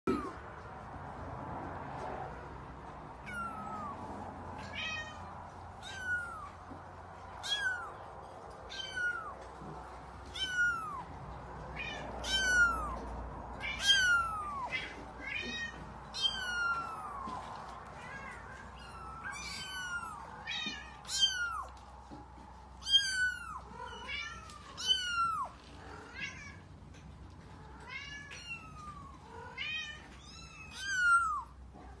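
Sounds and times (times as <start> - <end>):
kitten meowing: 0.1 - 0.4, 3.2 - 8.1, 8.7 - 9.5, 10.2 - 21.8, 22.8 - 26.4, 27.9 - 31.6.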